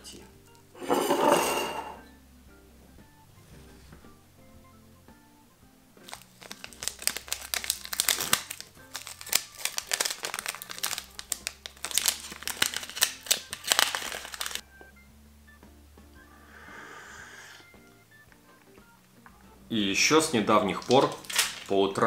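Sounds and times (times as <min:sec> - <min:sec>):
quiet background music: 0:00.0 - 0:22.0
tea sachet crinkling and tearing: 0:06.0 - 0:14.6, 0:20.7 - 0:21.8
person sipping from a mug: 0:16.4 - 0:17.7.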